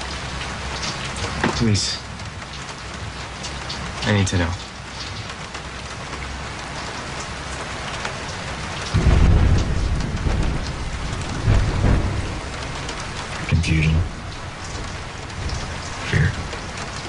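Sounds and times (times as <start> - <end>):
steady rain: 0.0 - 17.0
low thunder rumbles: 8.7 - 17.0.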